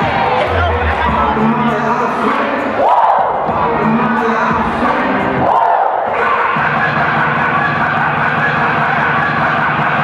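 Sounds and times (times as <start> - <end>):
audience cheering and yelling: 0.0 - 1.6, 5.3 - 10.0.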